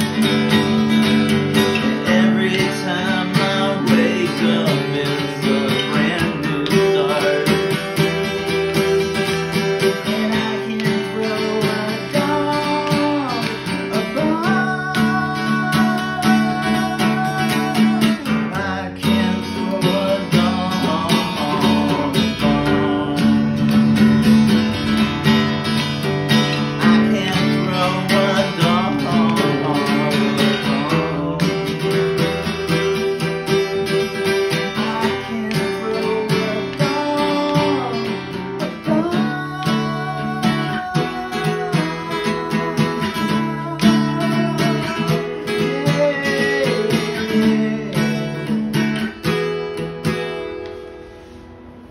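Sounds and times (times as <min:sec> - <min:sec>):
man singing: 0:00.0 - 0:50.2
acoustic guitar strumming chords: 0:00.0 - 0:51.9.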